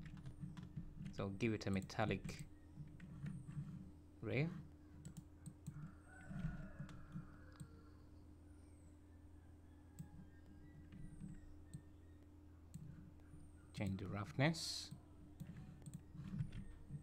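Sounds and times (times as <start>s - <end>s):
low electrical hum: 0.0s - 17.0s
computer mouse clicks: 5.0s - 7.8s, 10.0s - 11.9s, 14.9s - 17.0s.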